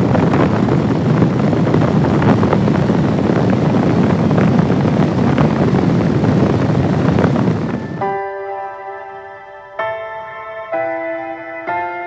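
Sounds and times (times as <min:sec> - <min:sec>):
wind and road noise: 0:00.0 - 0:08.3.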